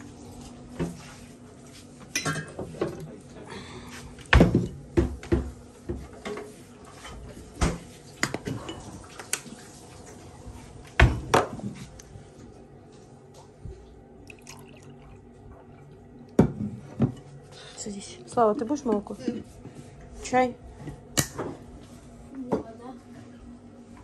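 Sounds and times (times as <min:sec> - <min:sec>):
dishes and cutlery clinking: 0:02.0 - 0:03.1.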